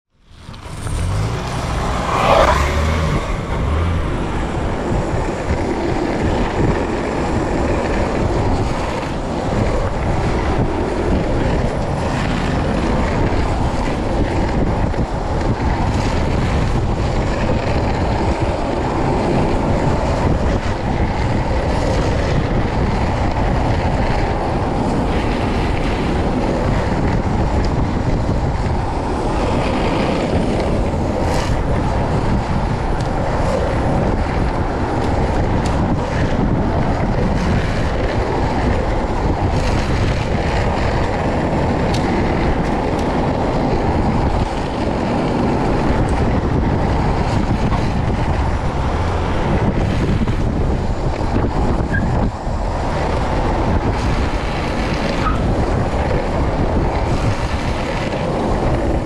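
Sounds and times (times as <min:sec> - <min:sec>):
skateboard wheels rolling on asphalt: 0:00.1 - 0:59.0
wind over microphone: 0:00.1 - 0:59.0.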